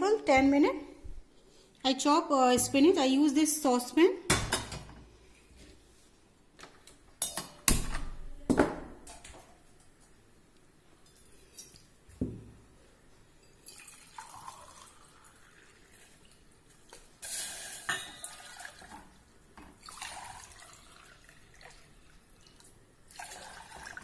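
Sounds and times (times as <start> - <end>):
water pouring into a saucepan: 13.5 - 24.0.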